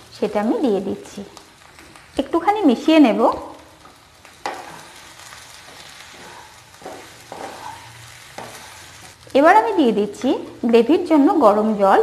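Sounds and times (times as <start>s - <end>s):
frying sizzle: 0.0s - 12.0s
wooden spatula stirring potatoes: 2.9s - 10.9s.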